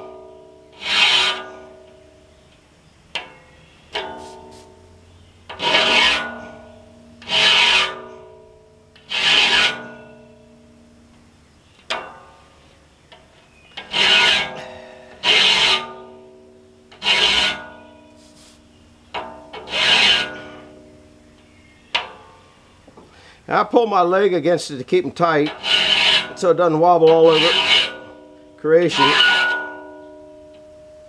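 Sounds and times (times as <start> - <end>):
file rasping on saw blade: 0.8 - 1.6, 5.6 - 6.6, 7.2 - 8.2, 9.0 - 10.0, 13.8 - 16.1, 17.0 - 17.8, 19.6 - 20.7, 25.5 - 28.1, 28.9 - 29.6
steel saw plate ringing: 5.6 - 8.4, 13.8 - 18.0, 25.5 - 31.0.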